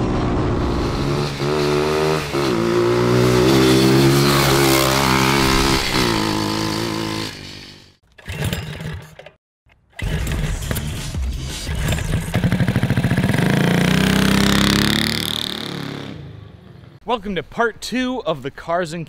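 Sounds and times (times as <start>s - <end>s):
small engine revving: 0.0s - 9.0s, 11.7s - 16.2s.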